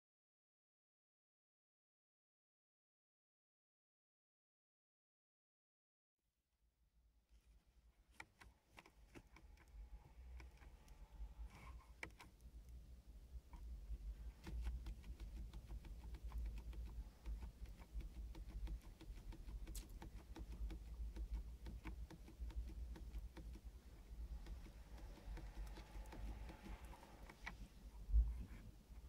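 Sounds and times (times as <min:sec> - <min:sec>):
faint low rumble: 0:08.9 - 0:29.0.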